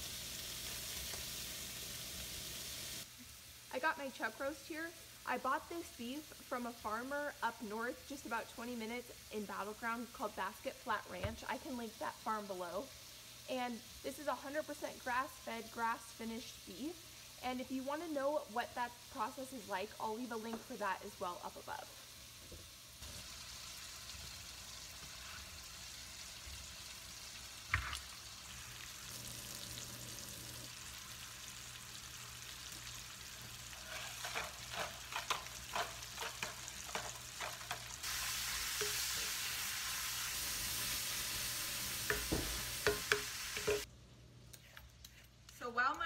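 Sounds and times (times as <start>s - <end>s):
bacon sizzling in a skillet: 0.0s - 43.9s
utensil scraping a pan: 33.6s - 39.4s.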